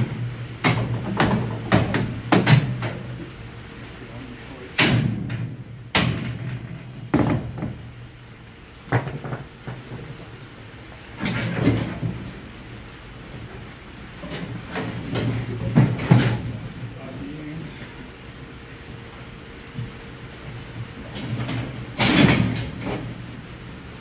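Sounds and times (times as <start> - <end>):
metal bangs on steel frame: 0.0 - 3.1, 4.8 - 7.9, 21.4 - 23.2.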